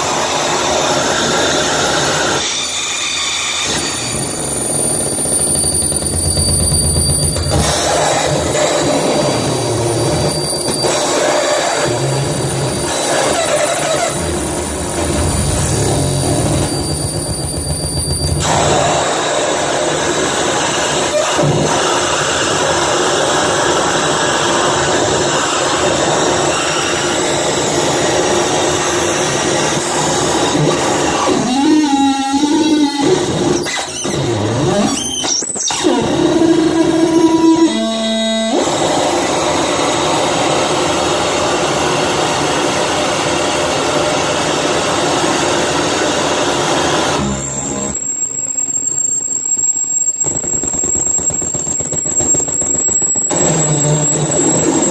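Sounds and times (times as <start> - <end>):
steady held tone: 0.0 - 21.1, 35.0 - 54.9
harsh distorted noise: 0.0 - 54.9.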